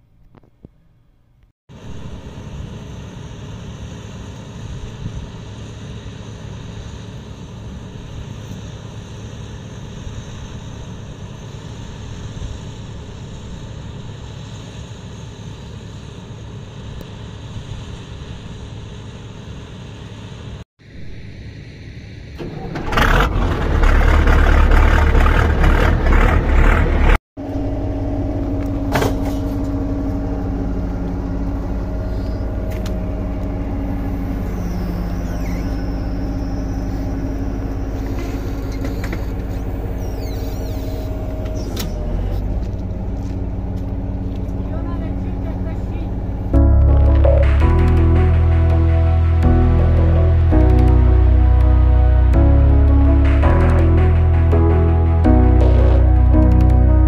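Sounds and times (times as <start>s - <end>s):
diesel engines rumbling: 1.7s - 57.0s
loud rough engine noise: 1.7s - 57.0s
engine idling: 22.3s - 57.0s.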